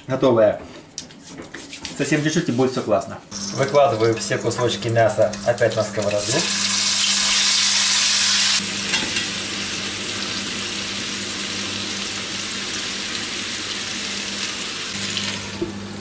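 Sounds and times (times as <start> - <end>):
meat sizzling in a frying pan: 6.0 - 15.4.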